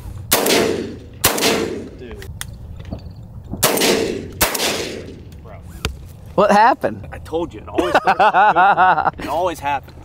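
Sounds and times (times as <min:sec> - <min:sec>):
shotgun blasts with echo: 0:00.3 - 0:02.0, 0:03.6 - 0:05.3.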